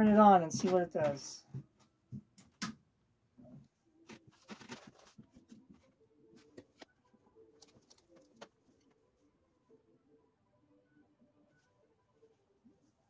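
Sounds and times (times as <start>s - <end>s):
faint steady television hum: 0.0s - 13.0s
faint clicks and handling noises: 3.4s - 9.0s.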